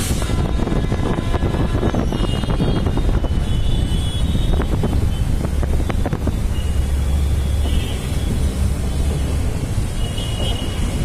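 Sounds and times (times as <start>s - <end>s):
diesel locomotive engine rumble: 0.0s - 11.0s
wind buffeting microphone: 0.0s - 11.0s.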